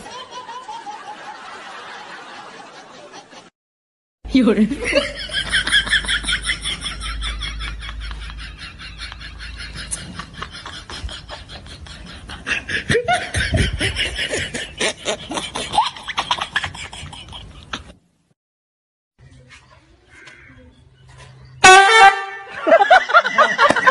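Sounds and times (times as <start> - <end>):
hearty human laughter: 4.8 - 18.0, 22.5 - 23.9.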